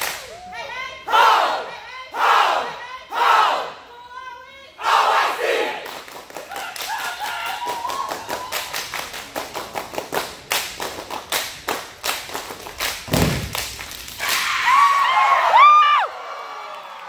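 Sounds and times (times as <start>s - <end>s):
group shouting: 1.1s - 3.8s, 4.8s - 5.8s
dancers clapping and slapping: 5.8s - 14.5s
deep thump: 13.1s - 13.6s.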